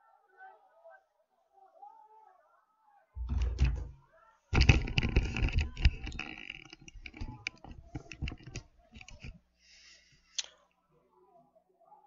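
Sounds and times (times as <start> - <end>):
microphone rubbing and rustling: 4.6 - 9.4.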